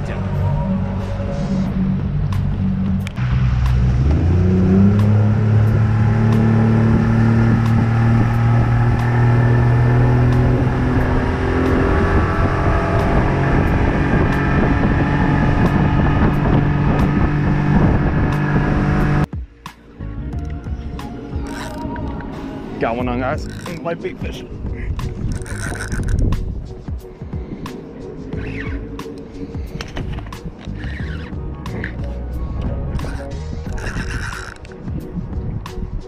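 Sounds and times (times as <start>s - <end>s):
wind: 0.0s - 36.0s
outboard motor revving: 1.6s - 19.3s, 25.2s - 26.3s, 33.0s - 34.7s.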